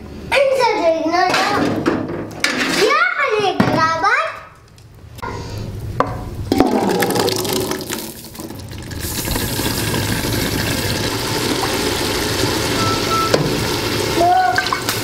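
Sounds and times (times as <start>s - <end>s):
watery hiss from pot: 8.9s - 15.0s.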